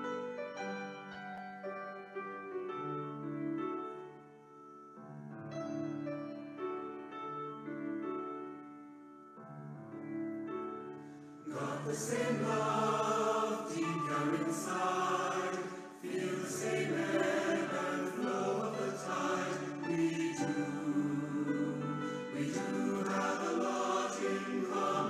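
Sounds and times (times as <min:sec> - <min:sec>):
piano chords: 0:00.0 - 0:25.0
mixed choir singing: 0:11.4 - 0:25.0.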